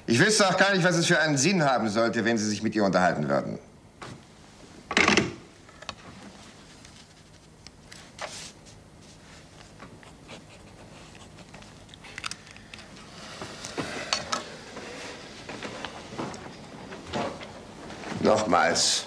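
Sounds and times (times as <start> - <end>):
paper rustling: 6.1 - 12.2.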